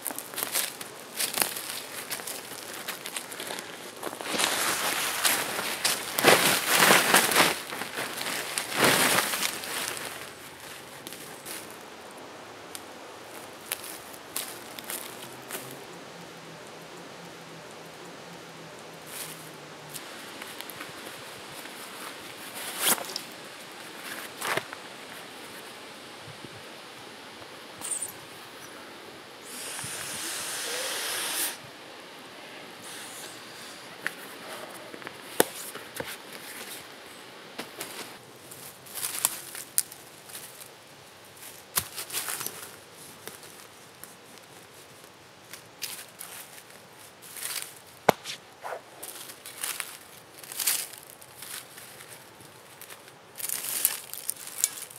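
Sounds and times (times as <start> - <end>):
tarp snapping: 0.0 - 10.4, 22.5 - 23.4
tarp rustling: 0.0 - 11.8, 19.1 - 25.7, 37.6 - 40.7, 41.4 - 54.9
steady hiss: 0.0 - 54.9.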